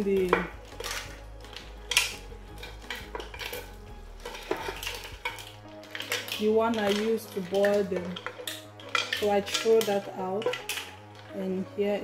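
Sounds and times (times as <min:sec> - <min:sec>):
spoon scraping ceramic tray: 0:00.3 - 0:11.4.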